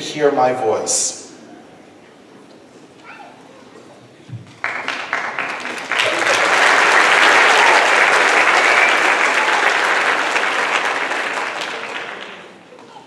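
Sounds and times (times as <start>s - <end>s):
audience applauding: 4.5s - 12.8s.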